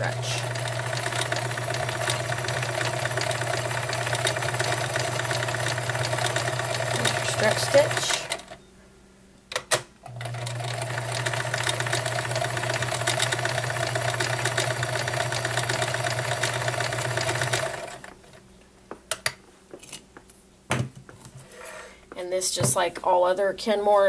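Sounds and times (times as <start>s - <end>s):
sewing machine running: 0.0s - 8.5s, 10.1s - 18.1s.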